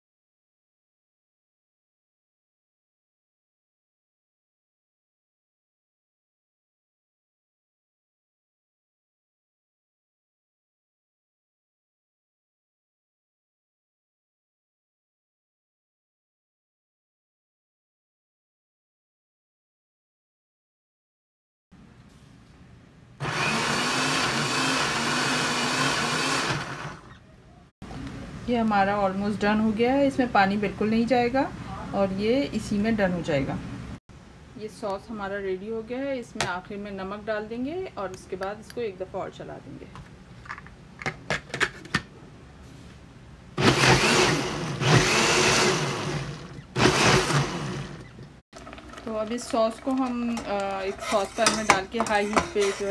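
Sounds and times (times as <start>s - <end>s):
blender motor running: 23.2s - 27.2s, 43.6s - 49.0s.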